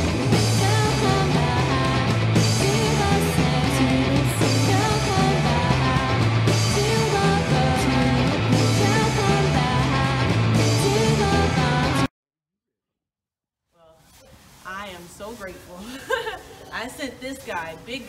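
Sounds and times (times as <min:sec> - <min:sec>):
rock music with vocals: 0:00.0 - 0:12.1.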